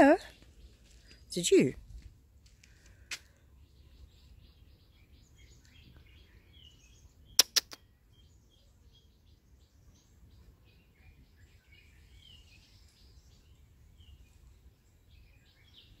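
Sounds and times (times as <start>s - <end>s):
faint bird chirps: 3.3s - 16.0s
sharp clicks: 7.4s - 7.8s.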